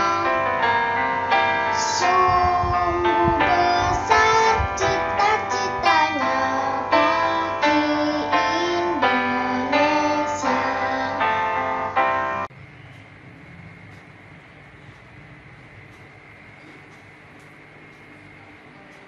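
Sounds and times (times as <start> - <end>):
song with singing voice: 0.0 - 12.5.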